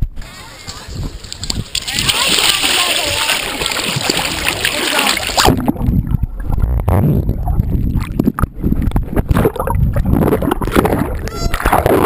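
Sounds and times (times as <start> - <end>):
water sloshing and gurgling: 0.6 - 12.0.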